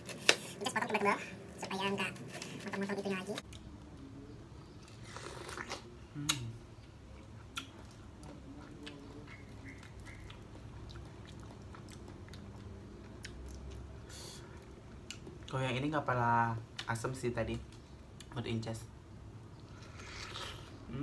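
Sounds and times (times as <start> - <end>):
person biting fruit: 5.0 - 6.6
wet chewing: 7.1 - 15.6.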